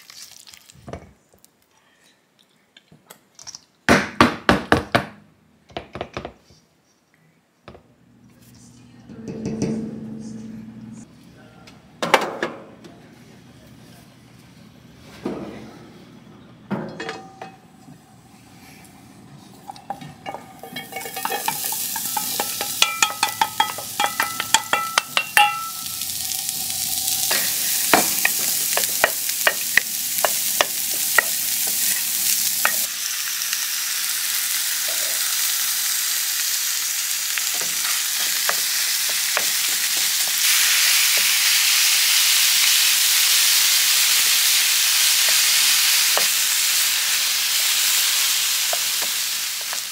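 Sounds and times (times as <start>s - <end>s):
food sizzling in a pan: 19.4s - 49.9s.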